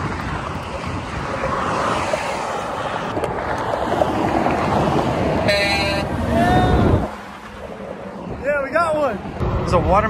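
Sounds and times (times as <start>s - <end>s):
skateboard wheels rolling on asphalt: 0.0s - 5.4s
wind across microphone: 0.0s - 8.6s
freeway traffic going by: 0.0s - 10.0s.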